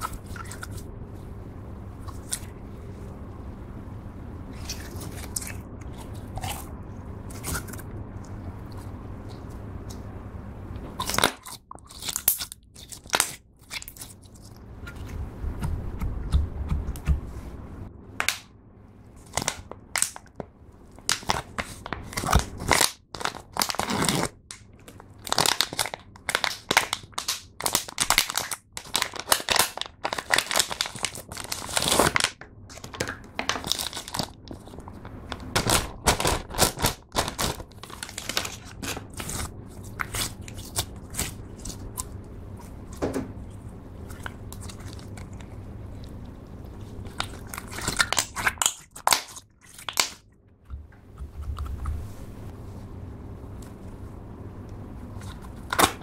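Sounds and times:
plastic packaging crinkling: 0:19.2 - 0:42.1, 0:47.0 - 0:50.2.

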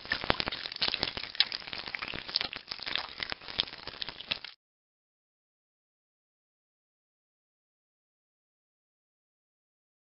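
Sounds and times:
dense crackling clicks: 0:00.0 - 0:04.6.

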